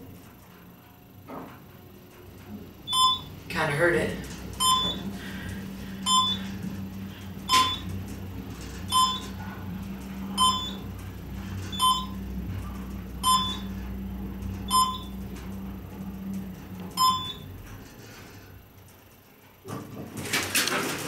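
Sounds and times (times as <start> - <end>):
elevator car hum: 0.0 - 21.0
short electronic elevator beeps: 2.9 - 3.4, 4.5 - 8.0, 8.9 - 9.4, 10.2 - 10.9, 11.6 - 12.3, 13.2 - 13.9, 14.6 - 15.5, 16.9 - 17.6.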